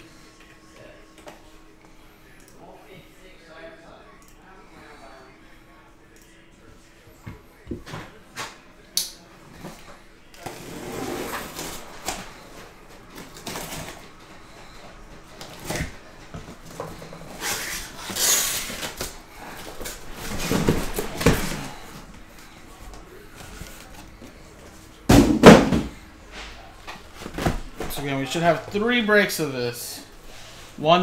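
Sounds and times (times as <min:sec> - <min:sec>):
cardboard boxes scraping: 0:10.4 - 0:12.0
box thumping down: 0:25.1 - 0:26.0
knocks of boxes: 0:25.1 - 0:26.0.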